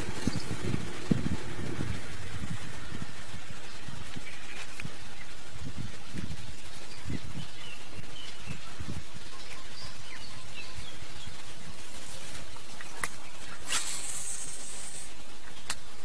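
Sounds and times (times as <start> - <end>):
outdoor background noise: 0.0 - 16.0
brief high hiss: 13.6 - 15.2.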